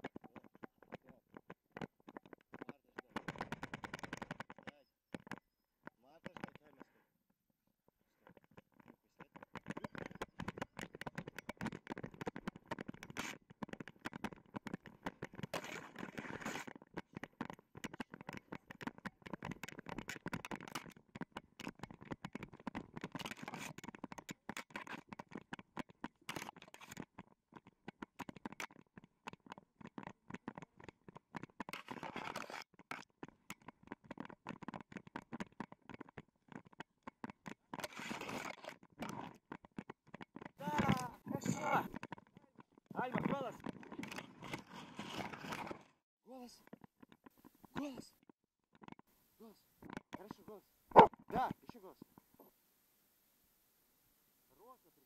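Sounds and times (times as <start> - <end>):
fur and harness rubbing on camera: 41.4 - 45.9.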